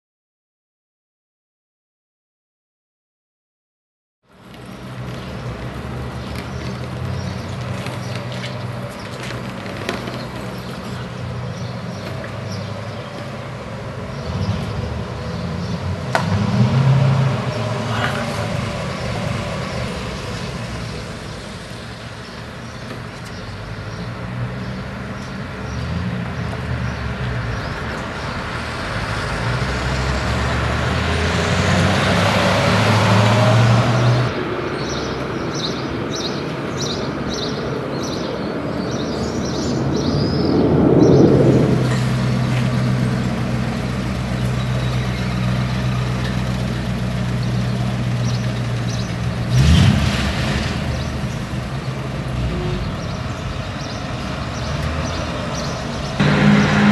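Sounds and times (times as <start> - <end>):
street traffic: 4.2 - 56.9.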